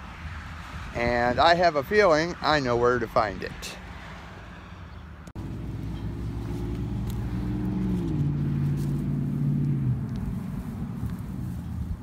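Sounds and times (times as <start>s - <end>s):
low traffic rumble: 0.0s - 12.0s
vehicle engine passing by: 3.9s - 12.0s.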